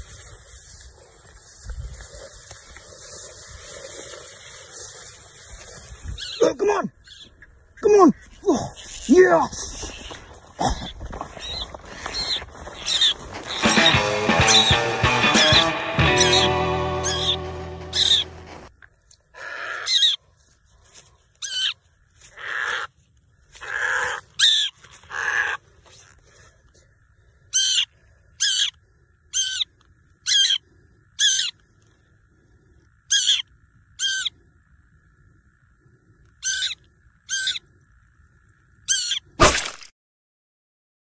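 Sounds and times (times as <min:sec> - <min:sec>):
bird distress squawks: 0:10.8 - 0:18.5, 0:19.3 - 0:20.2, 0:21.4 - 0:22.9, 0:23.6 - 0:25.6, 0:27.5 - 0:30.6, 0:31.2 - 0:31.6, 0:33.1 - 0:34.3, 0:36.4 - 0:37.6, 0:38.9 - 0:39.3.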